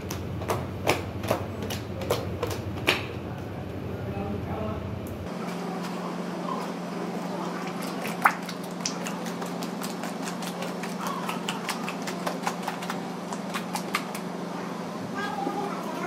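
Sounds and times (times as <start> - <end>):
steady low hum: 0.0 - 16.0
hands slapping wet slurry: 7.2 - 14.4.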